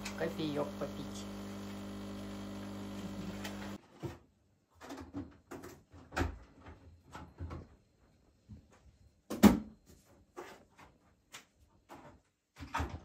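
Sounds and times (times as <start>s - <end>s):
coffee machine pump humming: 0.0s - 3.8s.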